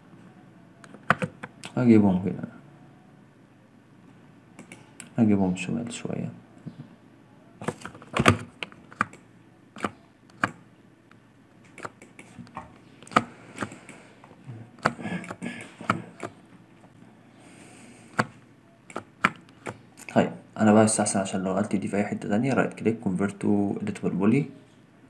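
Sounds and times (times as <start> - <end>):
keyboard and mouse clicks: 0.8 - 1.8, 4.6 - 5.2, 7.6 - 10.6, 11.7 - 14.0, 14.8 - 16.4, 18.1 - 20.1.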